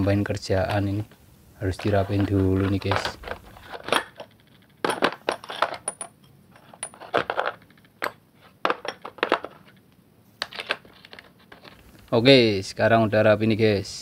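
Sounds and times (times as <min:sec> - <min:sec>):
steel sockets clinking: 0:01.7 - 0:09.6.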